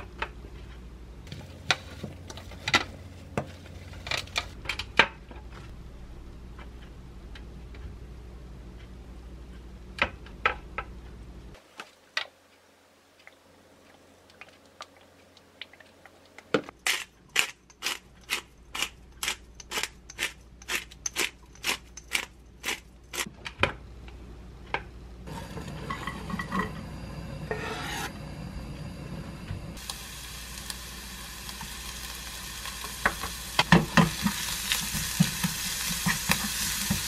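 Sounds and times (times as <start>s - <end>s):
onion scraped into frying pan: 27.5s - 28.1s.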